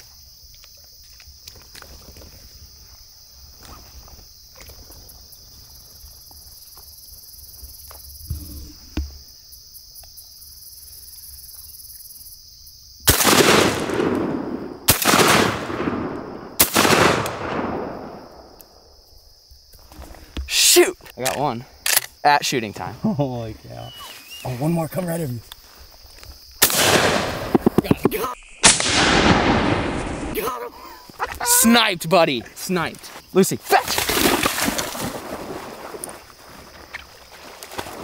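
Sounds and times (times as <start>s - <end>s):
high insect hum: 0.0s - 38.0s
echoing shotgun blasts: 13.1s - 18.5s, 26.6s - 27.7s, 28.6s - 30.4s.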